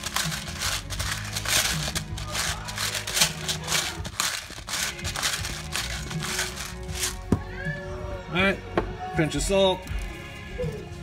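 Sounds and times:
pepper grinder crunching: 0.0 - 7.2
background music: 0.0 - 11.0.

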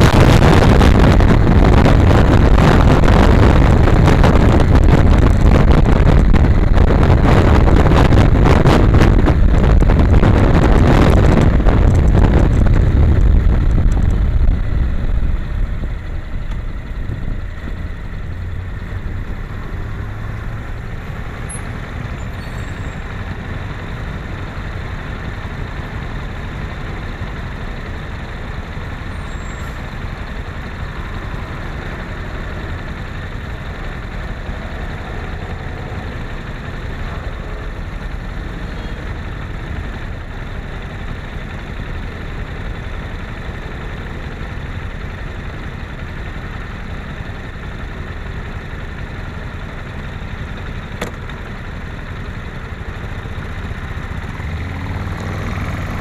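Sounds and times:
motorcycle engine idling: 11.7 - 54.8
wind rushing: 30.9 - 37.9.

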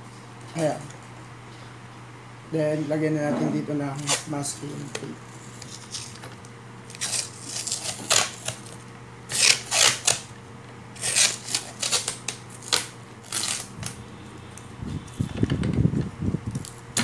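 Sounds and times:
masking tape ripping off roll: 4.0 - 4.3, 6.9 - 10.3, 11.0 - 14.0.

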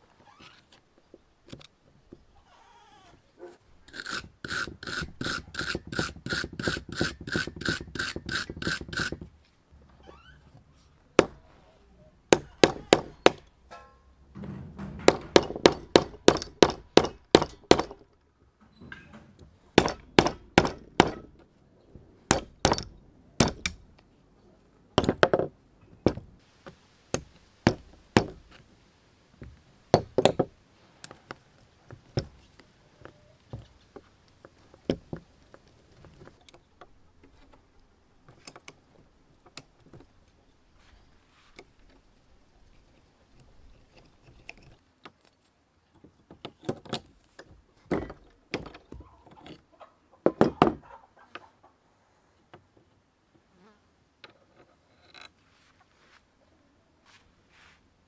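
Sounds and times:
metal tool scraping grease: 3.9 - 9.2.

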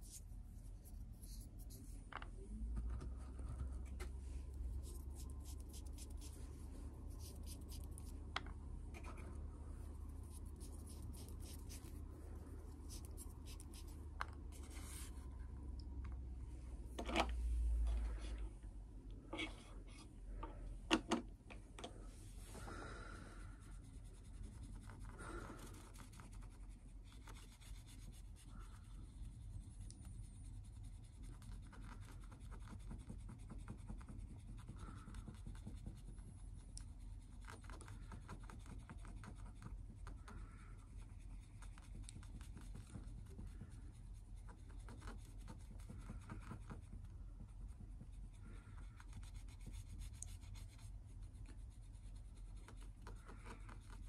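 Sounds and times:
swab scratching on wood: 4.5 - 8.3, 9.0 - 14.0.

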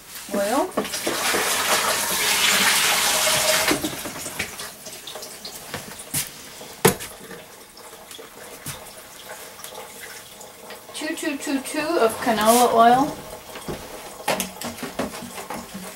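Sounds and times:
running water from tap: 0.1 - 15.9.

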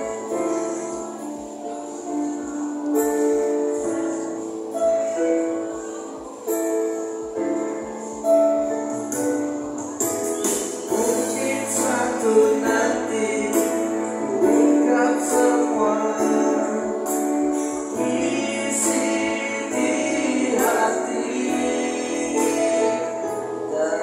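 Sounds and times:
sustained keyboard accompaniment: 0.0 - 24.0
high percussion beat: 8.2 - 23.5
men singing into microphones: 10.9 - 24.0.

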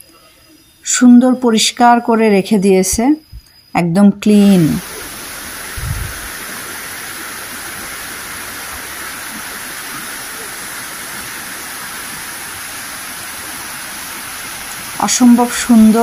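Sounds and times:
stream rushing over stones: 4.8 - 16.0.

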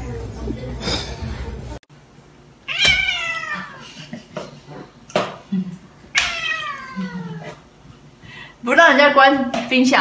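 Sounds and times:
cat meowing: 2.7 - 3.8, 6.2 - 7.5.

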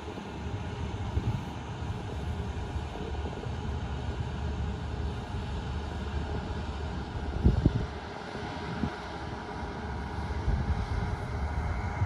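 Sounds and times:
wind on microphone: 7.2 - 8.0, 10.2 - 12.0.

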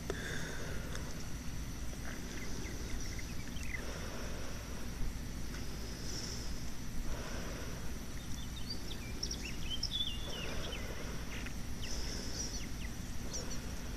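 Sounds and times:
high insect drone: 0.0 - 13.9
bird chirping and whistling: 8.4 - 10.8.

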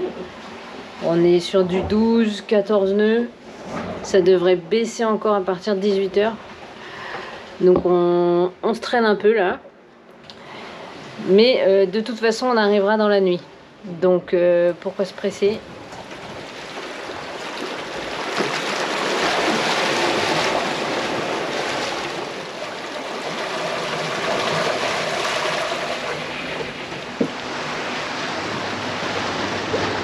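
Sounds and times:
water splashing along hull: 0.0 - 4.4, 14.4 - 30.0.

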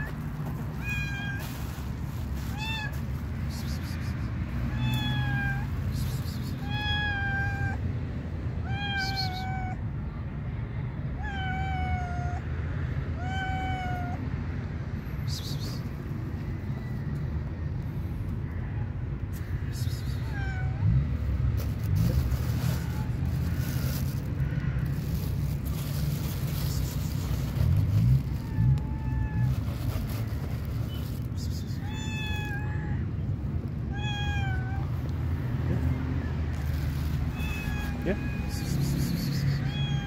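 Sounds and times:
cat meowing: 0.0 - 1.6, 2.4 - 3.0, 4.7 - 5.8, 6.4 - 7.9, 8.6 - 9.8, 11.2 - 12.5, 13.2 - 14.2, 20.0 - 20.9, 28.2 - 30.0, 30.9 - 33.2, 33.8 - 35.2, 35.8 - 40.0.

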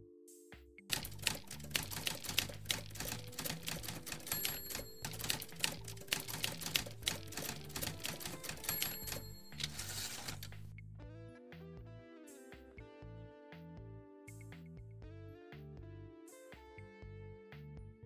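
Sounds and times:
typewriter key clatter: 0.9 - 10.6
typewriter bell ring: 0.9 - 10.7
background music with bass line: 10.6 - 18.0.

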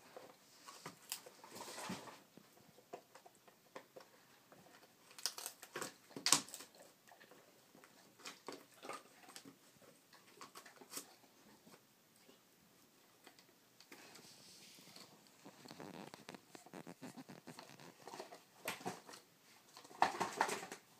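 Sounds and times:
dog gnawing on chew: 2.9 - 11.3.

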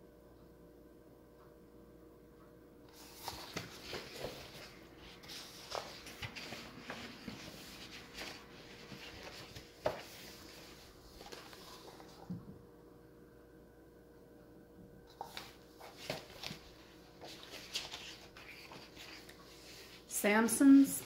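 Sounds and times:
room hum: 0.0 - 21.0
paper pages rustling and turning: 2.9 - 12.4, 15.1 - 20.1.

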